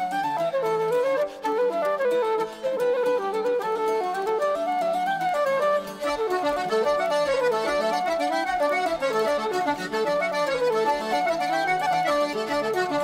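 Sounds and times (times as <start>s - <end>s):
brisk instrumental melody: 5.4s - 13.0s.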